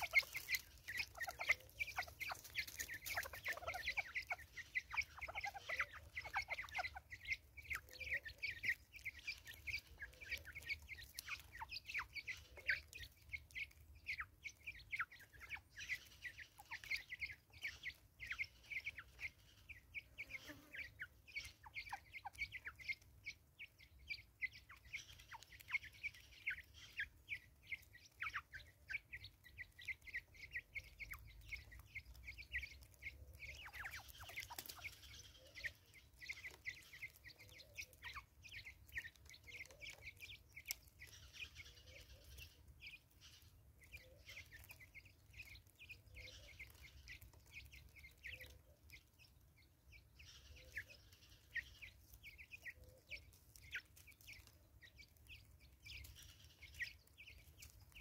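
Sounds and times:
soft clucking: 0.0 - 14.3
birds pecking grain: 0.0 - 58.0.

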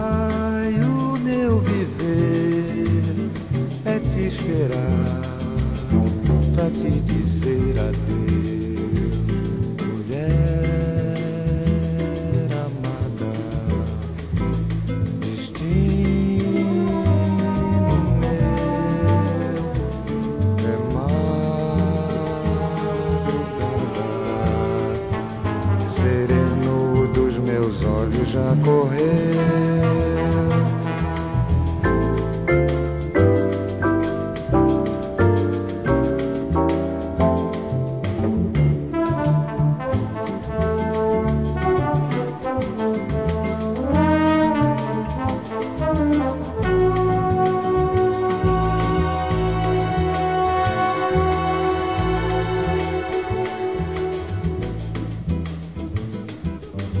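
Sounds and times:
instrumental music with steady beat: 0.0 - 57.0
brass holding long notes: 16.7 - 27.1, 29.2 - 32.6, 38.8 - 54.9.

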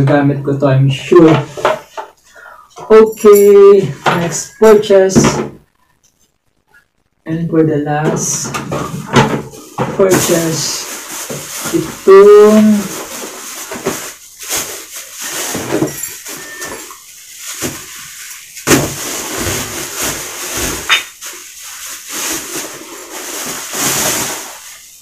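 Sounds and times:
plastic wrapping crinkling: 8.6 - 25.0.

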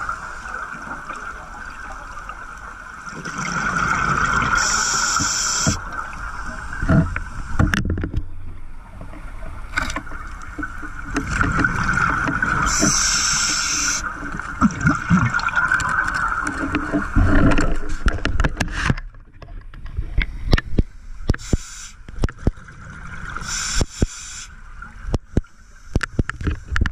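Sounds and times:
regulator hissing inhalation: 4.5 - 5.8, 12.6 - 14.0, 21.4 - 22.0, 23.4 - 24.6.

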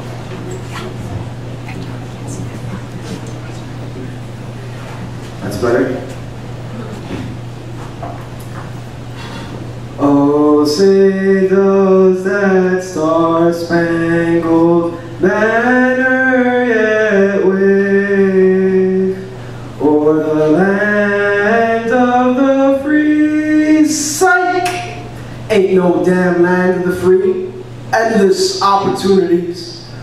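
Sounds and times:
man singing unaccompanied: 10.0 - 29.9.

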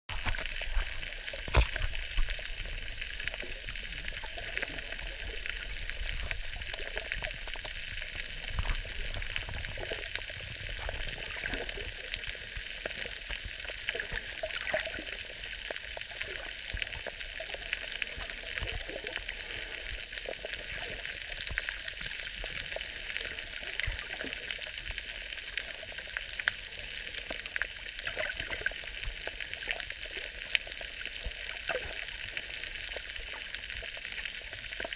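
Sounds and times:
underwater crackle of tiny clicks: 0.1 - 34.9
louder underwater clicks: 1.4 - 2.3.

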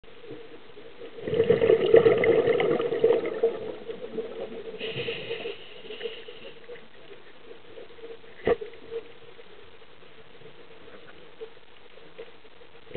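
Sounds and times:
soft hiss: 0.0 - 1.3, 2.6 - 12.9
underwater air bubbles gurgling: 0.4 - 9.0.

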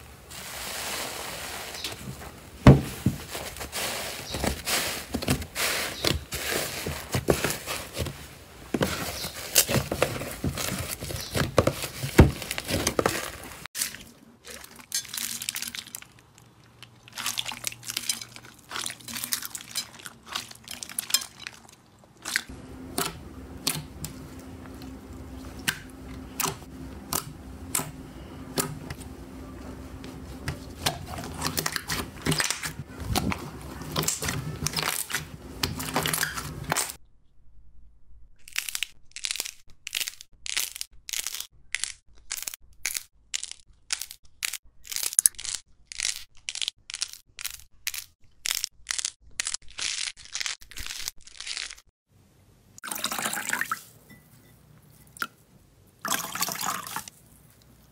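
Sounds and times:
slime squishing and crackling: 8.8 - 22.5, 30.0 - 37.0.

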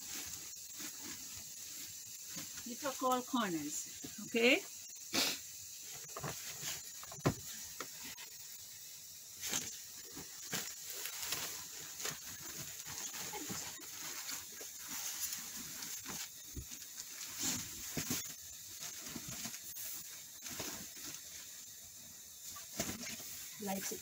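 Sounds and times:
thump: 7.2 - 7.4.

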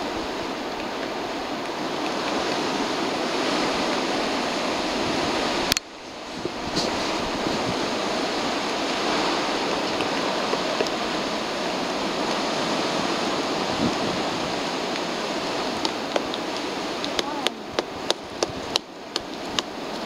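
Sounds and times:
steady rushing noise: 0.0 - 20.0
woodpecker tapping tree trunk: 15.8 - 20.0.

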